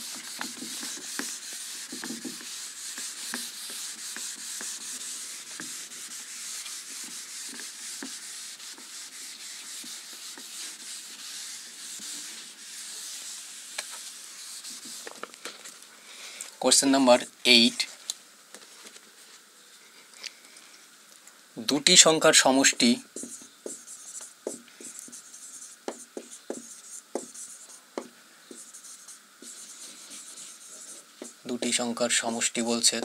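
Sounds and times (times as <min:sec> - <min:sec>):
eraser scrubbing whiteboard: 0:00.0 - 0:15.2, 0:22.6 - 0:31.8.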